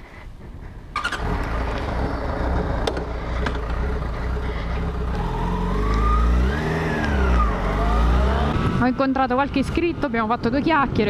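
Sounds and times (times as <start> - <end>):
motorcycle engine revving: 1.0 - 10.5.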